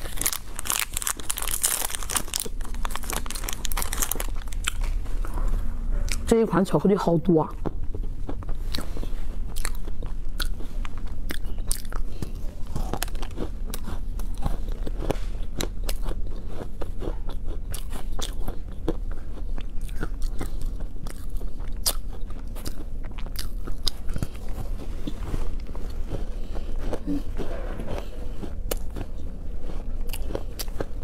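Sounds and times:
person chewing crunchy cookies: 0:00.0 - 0:31.0.

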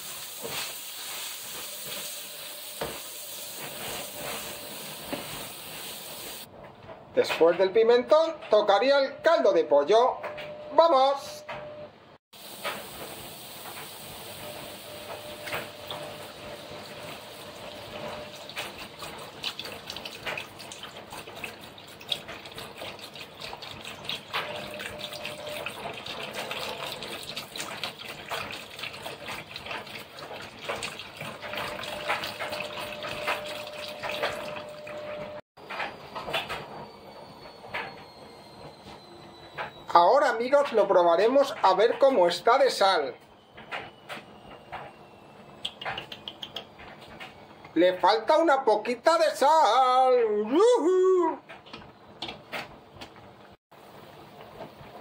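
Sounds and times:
liquid sizzling in hot pan: 0:00.0 - 0:06.5, 0:12.4 - 0:19.6
stock pouring and splashing: 0:12.4 - 0:35.4.

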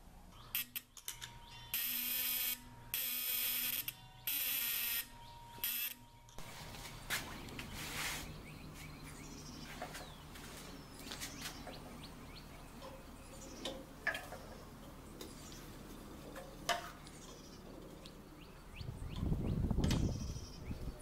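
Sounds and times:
small birds chirping: 0:05.1 - 0:21.0.

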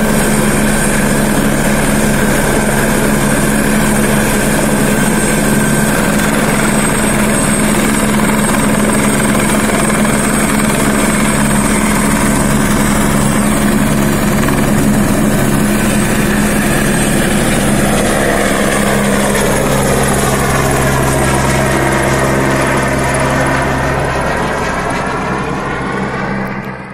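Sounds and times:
helicopter rotor and turbine whine: 0:00.0 - 0:26.9.

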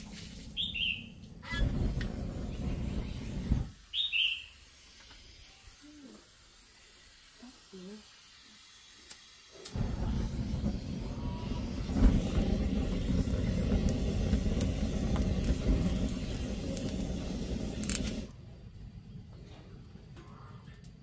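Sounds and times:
gas burning with low rumble: 0:00.0 - 0:04.1, 0:09.6 - 0:21.0.

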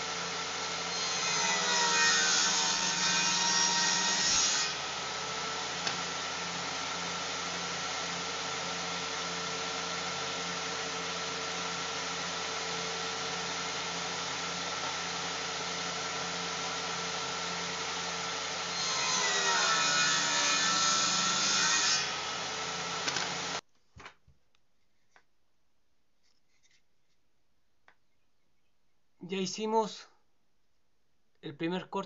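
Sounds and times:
saw cutting wood: 0:00.0 - 0:23.6
table saw running: 0:00.0 - 0:23.6.

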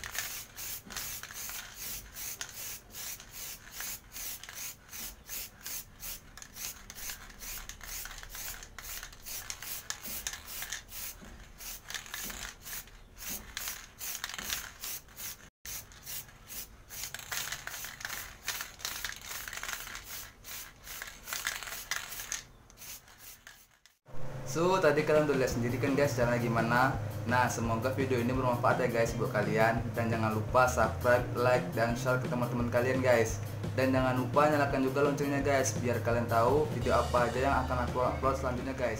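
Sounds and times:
aerosol spray can hissing: 0:00.0 - 0:24.0.

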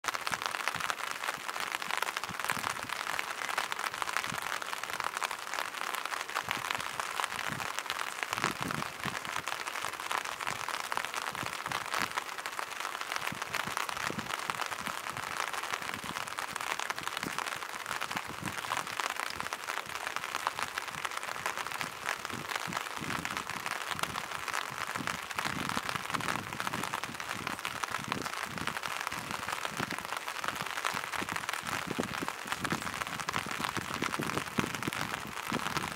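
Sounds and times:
light rain on water and rocks: 0:00.0 - 0:35.9.

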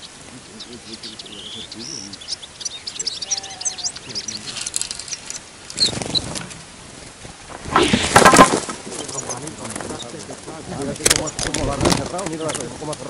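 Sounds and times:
small birds chirping: 0:00.0 - 0:08.0, 0:08.6 - 0:13.0
wings fluttering: 0:00.0 - 0:13.0
net sweeping with rushing swish: 0:07.6 - 0:08.3.

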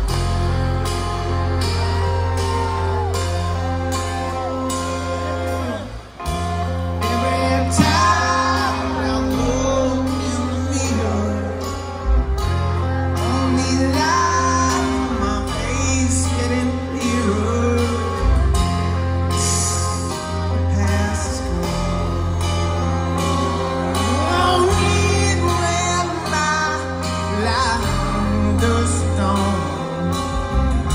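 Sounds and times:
live band playing: 0:00.0 - 0:30.9
man singing: 0:06.6 - 0:30.9.

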